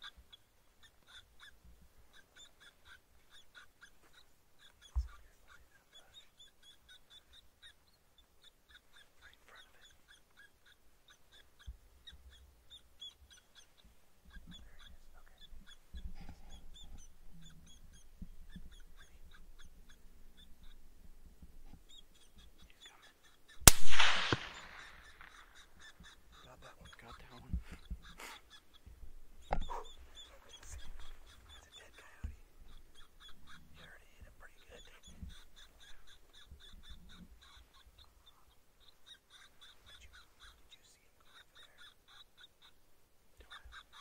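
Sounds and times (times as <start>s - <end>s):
rapid high-pitched chirping: 0.0s - 20.9s, 21.6s - 42.8s, 43.4s - 44.0s
rifle shot with echo: 23.6s - 25.3s.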